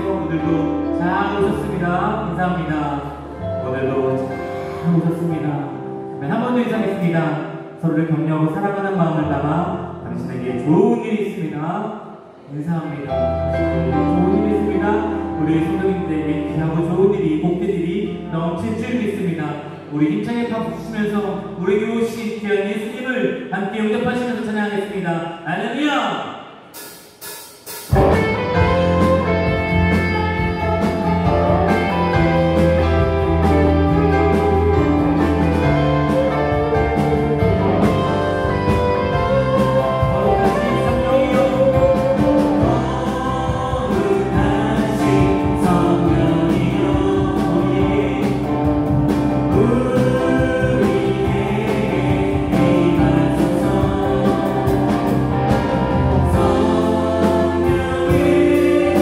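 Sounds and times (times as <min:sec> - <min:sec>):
worship band playing: 0:00.0 - 0:59.0
group of singers: 0:28.0 - 0:59.0.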